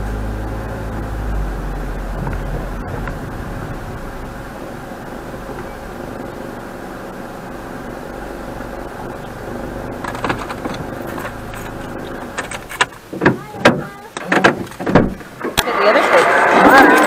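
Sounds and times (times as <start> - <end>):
car cabin hum: 0.0 - 16.3
sharp clicks and knocks: 9.9 - 15.7.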